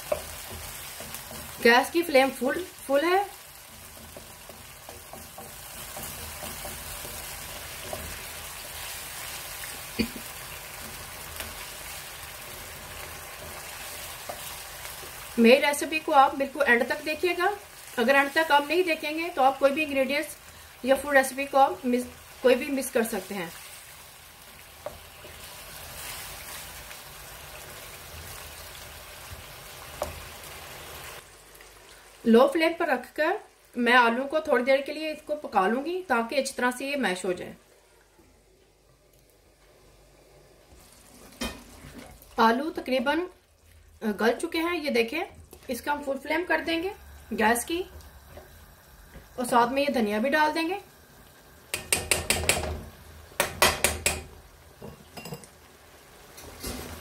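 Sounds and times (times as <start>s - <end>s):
spatula knocking: 0.0s - 1.7s, 3.8s - 8.8s, 51.7s - 54.3s
wooden spatula stirring: 0.0s - 2.4s, 3.3s - 15.4s
potatoes sizzling in a pan: 0.0s - 37.7s, 39.8s - 57.0s.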